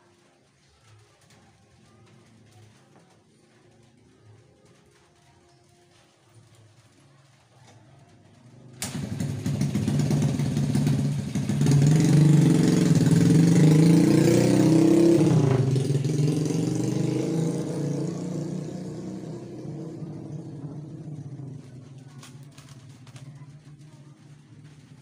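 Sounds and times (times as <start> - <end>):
vehicle engine with wavering pitch: 8.4 - 25.0.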